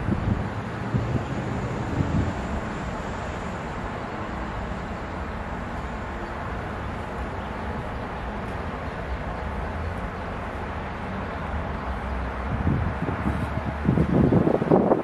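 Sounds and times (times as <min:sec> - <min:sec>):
wind on microphone: 0:00.0 - 0:02.7, 0:12.5 - 0:15.0.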